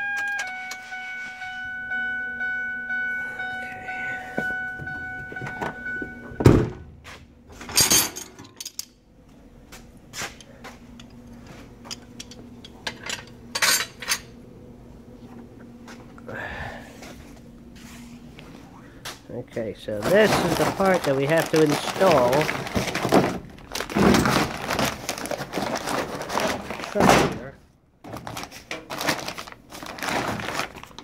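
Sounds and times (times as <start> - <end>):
high whine with overtones: 0.0 - 6.8
handling rustling and clatter: 7.5 - 8.9, 10.2 - 14.4, 19.9 - 27.4, 28.0 - 31.0.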